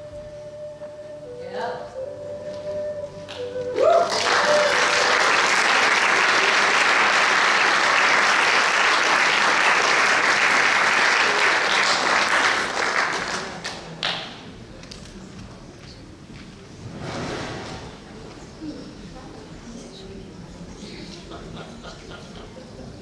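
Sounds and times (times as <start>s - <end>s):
audience applauding: 3.3s - 14.3s.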